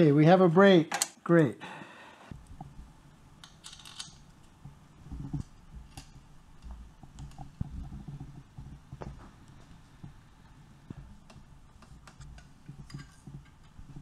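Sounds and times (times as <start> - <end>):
metal clicks and handling: 3.4 - 4.2.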